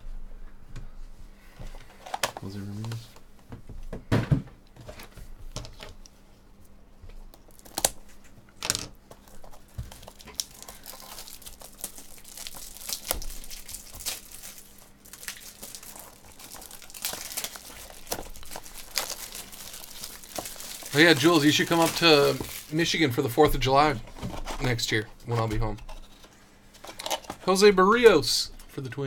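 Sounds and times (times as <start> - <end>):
foil wrappers crinkling and tearing: 7.4 - 8.3, 9.1 - 26.2, 26.8 - 28.3.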